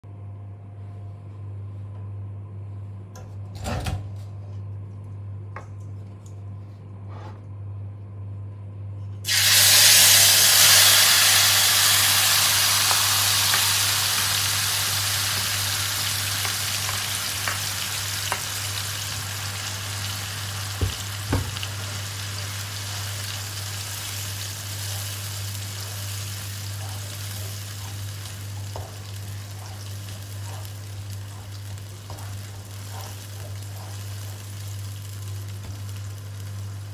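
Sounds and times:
frying sizzle in a wok: 0:09.2 - 0:36.9.

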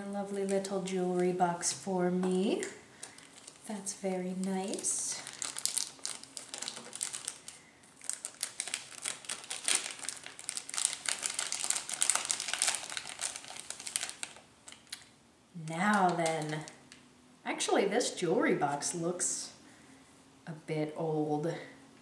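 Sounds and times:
plastic wrapping crinkling: 0:00.0 - 0:17.0.

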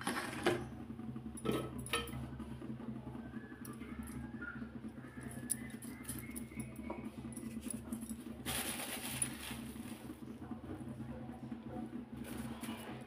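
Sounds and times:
steady low hum: 0:00.0 - 0:13.0
ingredients rustling in steel bowl: 0:08.4 - 0:10.0.

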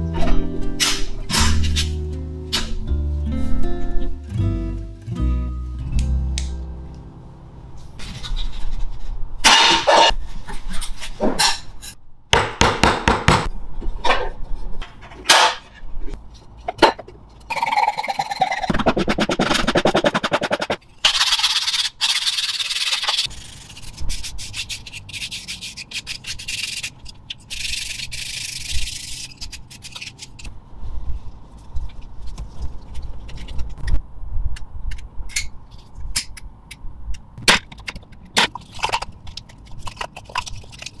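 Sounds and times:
sanding wood strokes: 0:18.7 - 0:20.8.

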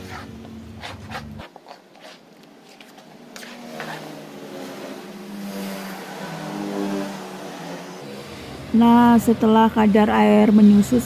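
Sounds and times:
vehicle engine hum: 0:00.0 - 0:01.7.

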